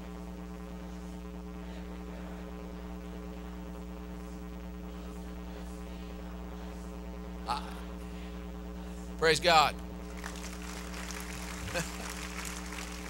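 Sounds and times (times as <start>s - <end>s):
electrical mains hum: 0.0s - 13.0s
rhythmic hand-clapping: 9.7s - 13.0s.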